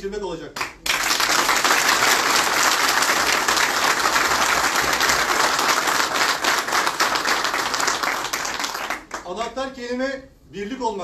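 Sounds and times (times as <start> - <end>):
audience applauding: 0.6 - 9.3.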